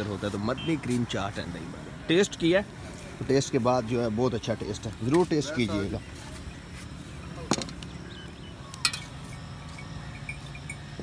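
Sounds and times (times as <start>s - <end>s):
steady low hum: 0.0s - 11.0s
faint chirping: 5.7s - 11.0s.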